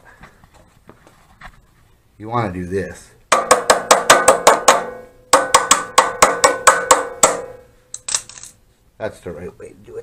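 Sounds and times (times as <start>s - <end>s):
metal-on-metal tapping: 3.3s - 8.5s.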